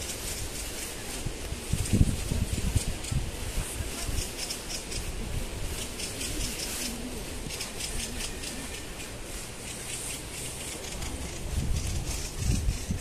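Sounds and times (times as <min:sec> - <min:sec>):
bird chattering rattle: 0:04.1 - 0:05.1, 0:05.8 - 0:13.0.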